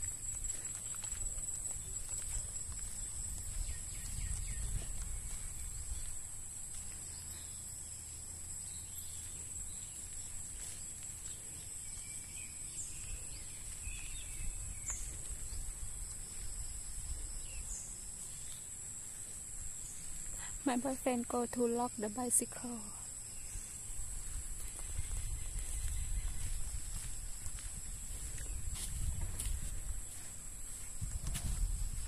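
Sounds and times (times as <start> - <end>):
bird chirps: 24.8 - 27.0.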